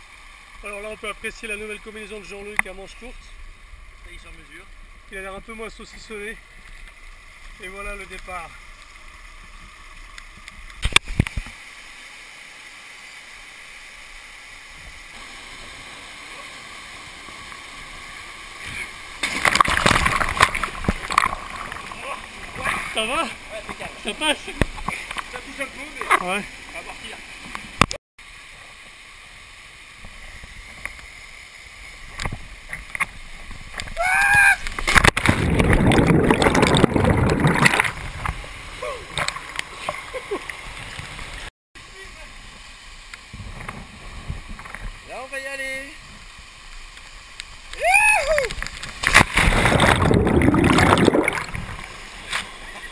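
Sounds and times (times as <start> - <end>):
waterfall pouring into pool: 4.0 - 52.9
underwater churning and bubbles: 13.1 - 28.0, 34.6 - 41.5, 48.5 - 52.7.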